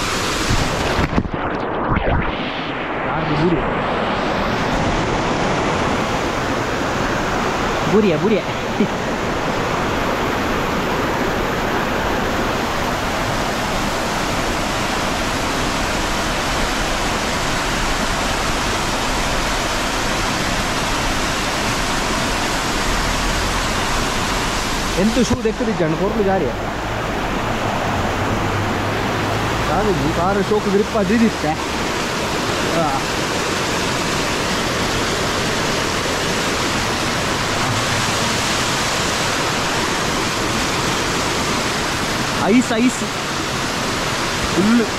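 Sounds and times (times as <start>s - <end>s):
stream rushing over stones: 0.0s - 44.9s.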